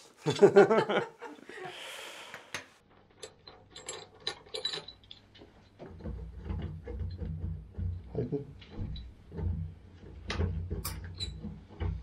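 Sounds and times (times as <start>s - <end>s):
dull knocks: 5.8s - 12.0s.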